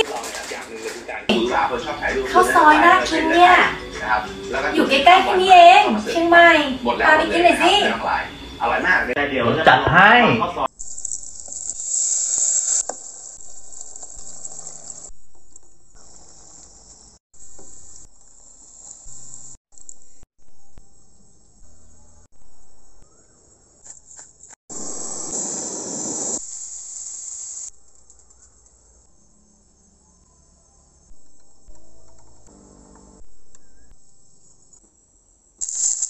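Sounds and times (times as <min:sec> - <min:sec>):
coconut milk sizzling in pan: 0:10.7 - 0:15.1, 0:24.7 - 0:27.7, 0:35.6 - 0:36.0
steady high hiss: 0:24.7 - 0:27.8, 0:35.6 - 0:36.0.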